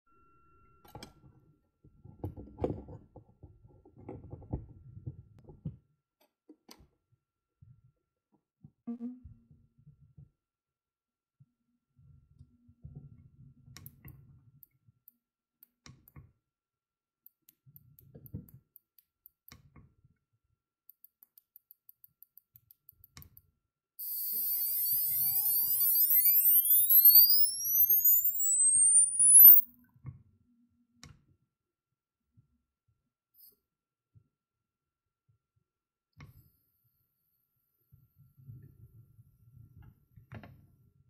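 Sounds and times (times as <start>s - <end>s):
faint clicks: 24.0s - 29.6s
high electronic whine rising: 24.0s - 29.6s.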